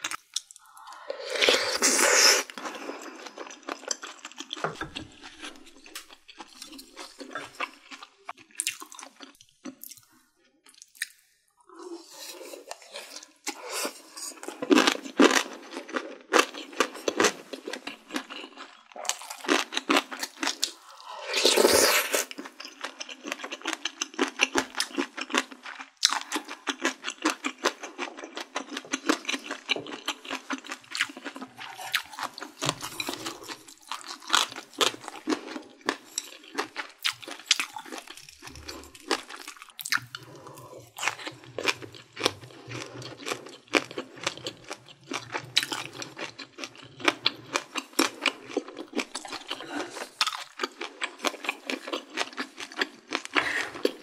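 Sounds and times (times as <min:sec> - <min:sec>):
person chewing: 0:00.0 - 0:54.0
slurp of soup from a spoon: 0:00.6 - 0:03.3, 0:20.7 - 0:22.4.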